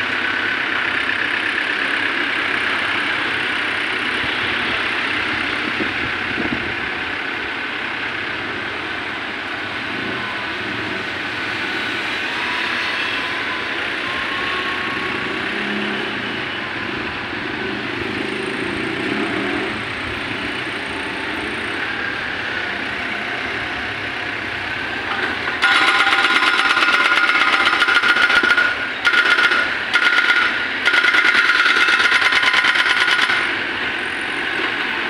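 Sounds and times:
excavator diesel engine running: 0.0s - 35.0s
motorbikes passing: 0.0s - 35.0s
street traffic: 0.0s - 35.0s.

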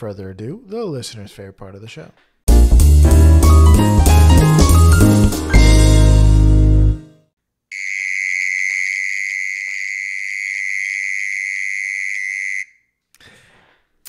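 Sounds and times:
mole cricket trilling: 7.8s - 12.7s.

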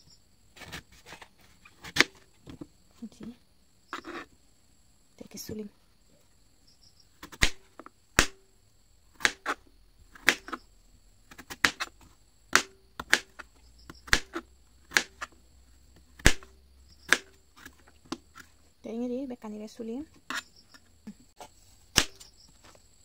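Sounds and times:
knife chopping on plastic board: 1.8s - 2.2s, 7.2s - 8.4s, 9.2s - 9.6s, 10.2s - 10.6s, 11.3s - 11.9s, 12.5s - 15.4s, 16.1s - 18.5s, 21.9s - 22.3s.

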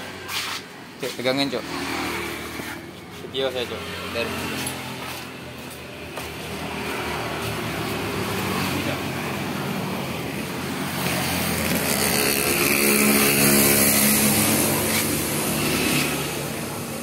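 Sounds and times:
small motorcycle engine running: 3.6s - 17.0s.

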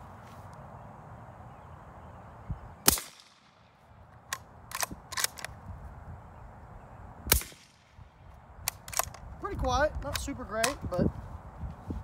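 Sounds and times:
suppressed rifle shot: 2.8s - 3.6s, 7.3s - 7.9s
rifle bolt metallic clicks: 4.1s - 5.6s, 8.6s - 9.3s, 10.0s - 10.8s.

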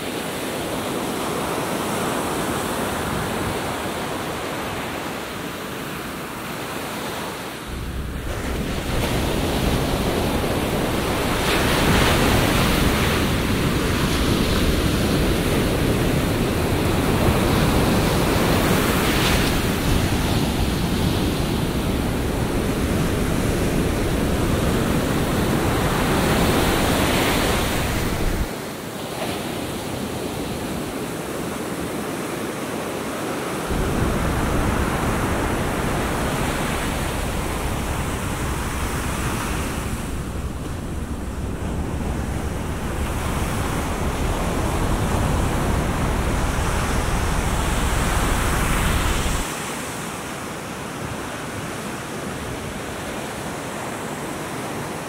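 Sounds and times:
wind rumble on microphone: 7.6s - 28.5s, 33.7s - 49.7s
surf breaking on beach: 7.6s - 29.7s, 33.6s - 50.4s.

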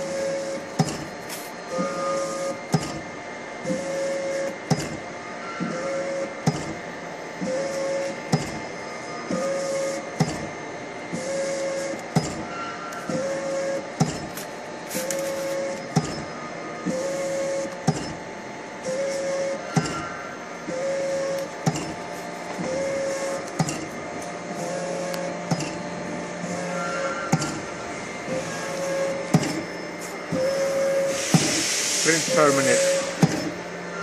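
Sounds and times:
printer whine: 0.0s - 34.0s
printer sharp click: 25.1s - 25.8s, 29.1s - 29.7s, 32.4s - 33.6s.

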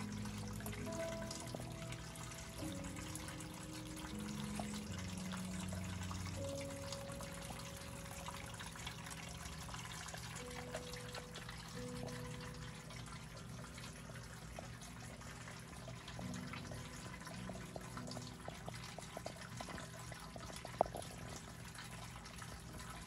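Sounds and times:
low steady hum: 0.0s - 23.0s
water trickling and dripping: 0.0s - 23.0s.

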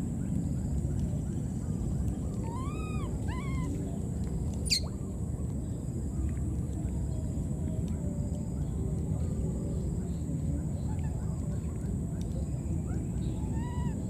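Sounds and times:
low background noise: 0.0s - 14.0s
baby monkey coo calls: 2.4s - 3.8s, 4.6s - 5.0s, 13.3s - 14.0s.

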